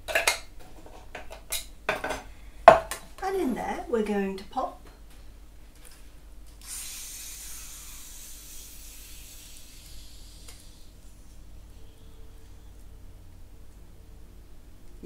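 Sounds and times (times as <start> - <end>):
carbonation hissing from bottle: 6.6 - 11.4.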